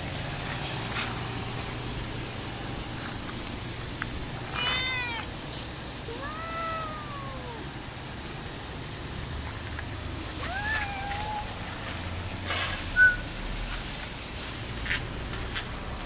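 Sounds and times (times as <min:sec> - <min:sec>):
cat meowing: 0:04.5 - 0:05.4, 0:06.0 - 0:07.8, 0:10.4 - 0:11.6.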